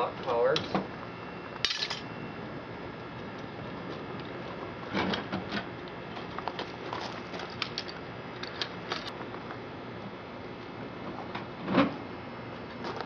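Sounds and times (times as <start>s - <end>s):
metal clicks and clatter: 6.5s - 9.1s.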